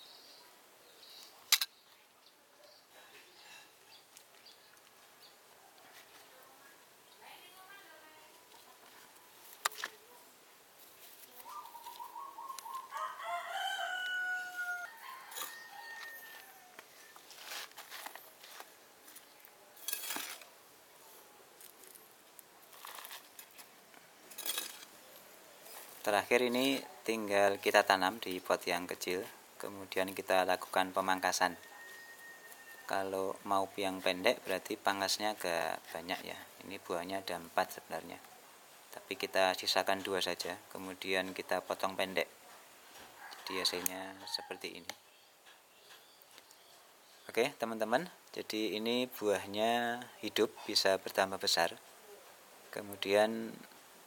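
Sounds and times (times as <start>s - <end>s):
potting medium rustling and scraping: 8.3s - 12.9s, 14.9s - 26.8s.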